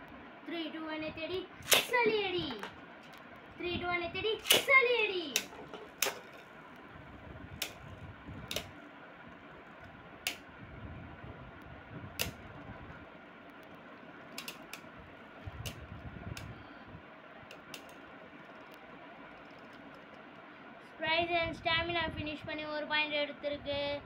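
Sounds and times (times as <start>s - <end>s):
spinning tops whirring: 1.6s - 3.2s, 4.2s - 6.8s
spinning tops colliding clicks: 1.6s - 3.3s, 4.4s - 6.9s, 14.2s - 14.9s, 17.5s - 20.3s.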